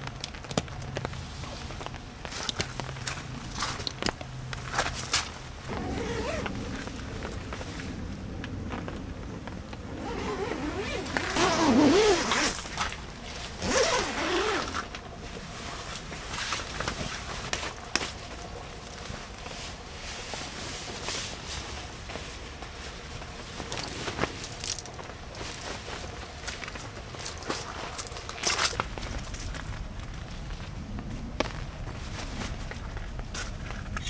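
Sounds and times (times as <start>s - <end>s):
tent zipper being pulled: 5.7s - 6.9s, 9.9s - 13.0s, 13.6s - 14.9s.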